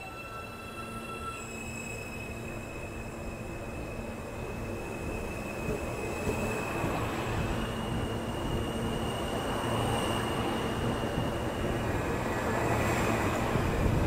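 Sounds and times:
train propulsion whine: 0.0s - 14.0s
wheels rumbling on rail: 0.0s - 14.0s.

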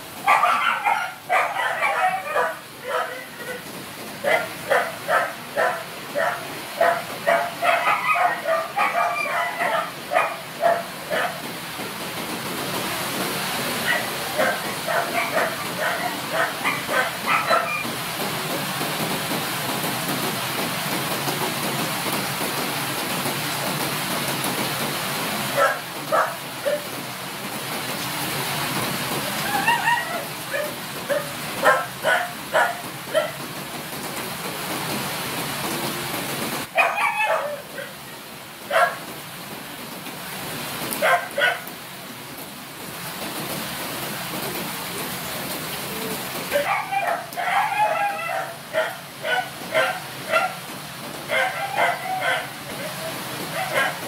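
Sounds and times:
rain hissing: 0.0s - 54.0s
dogs barking: 0.2s - 11.6s, 13.8s - 18.0s, 25.5s - 26.9s, 29.5s - 33.4s, 36.7s - 38.0s, 38.7s - 39.1s, 40.9s - 41.8s, 46.5s - 50.7s, 51.3s - 54.0s.

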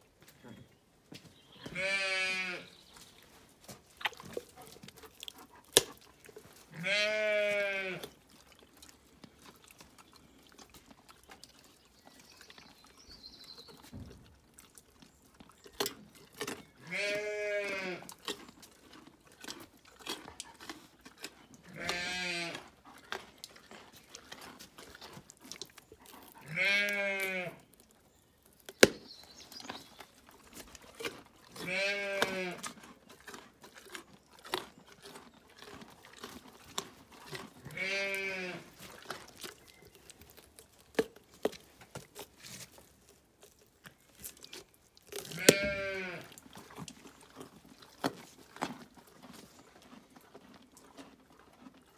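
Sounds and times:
sheep bleating: 1.7s - 2.7s, 6.7s - 8.0s, 16.8s - 18.1s, 21.7s - 22.6s, 26.4s - 27.6s, 31.6s - 32.6s, 37.7s - 38.7s, 45.3s - 46.3s.

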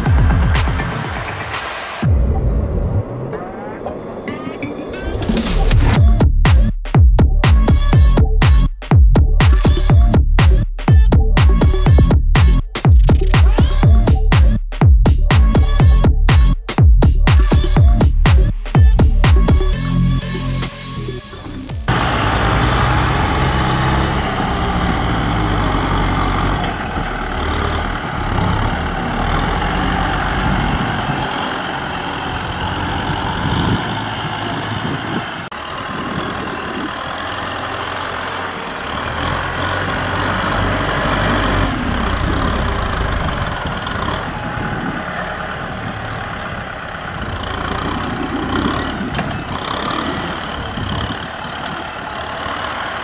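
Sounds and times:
tractor diesel engine rumbling: 19.8s - 53.0s.

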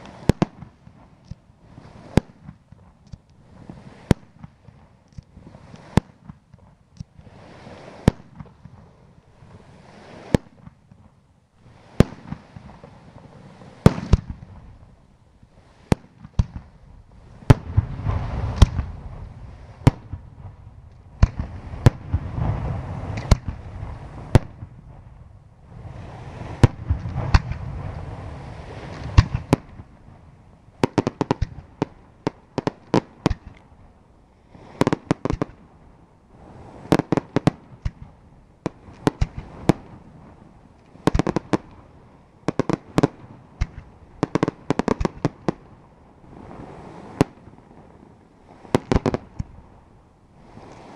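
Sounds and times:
firework rumble and crackle: 0.0s - 50.9s
firework bursts banging: 15.8s - 25.2s, 25.8s - 33.6s, 36.6s - 45.7s.

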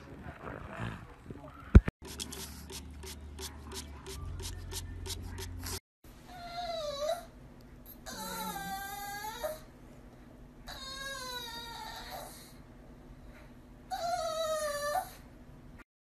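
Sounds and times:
dog whining: 6.3s - 9.7s, 10.6s - 12.6s, 13.9s - 15.2s.

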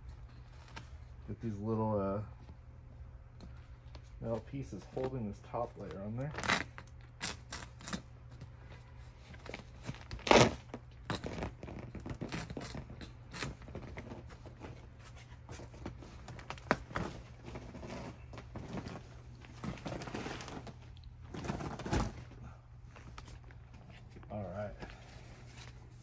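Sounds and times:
fabric and foam rustling: 8.3s - 26.0s.

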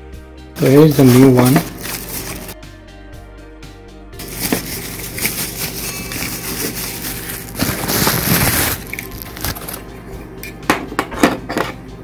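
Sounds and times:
plastic bag crinkling: 0.6s - 2.6s, 4.2s - 9.8s.

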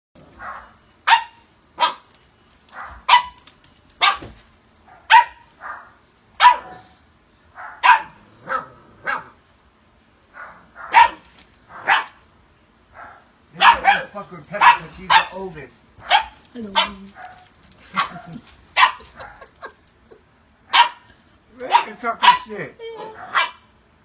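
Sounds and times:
puppy barking: 0.4s - 2.1s, 2.7s - 3.4s, 4.0s - 7.0s, 7.6s - 9.4s, 10.3s - 12.2s, 13.0s - 19.7s, 20.7s - 21.1s, 21.7s - 23.7s.

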